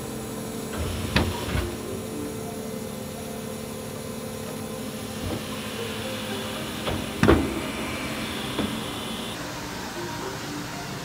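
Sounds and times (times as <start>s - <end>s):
bin lifter whirring: 0.0s - 11.0s
loud clunk: 6.7s - 9.4s.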